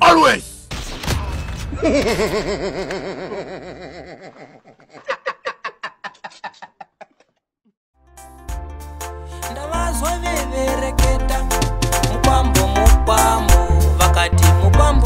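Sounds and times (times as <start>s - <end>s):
person laughing: 1.7s - 7.4s.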